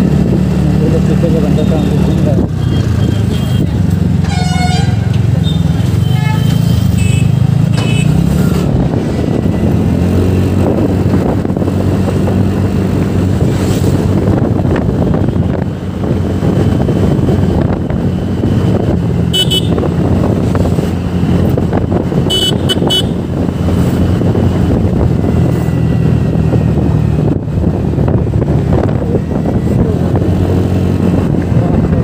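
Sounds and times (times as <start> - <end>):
vehicle horn beeping: 2.6 - 8.2, 19.3 - 19.9, 22.2 - 23.2.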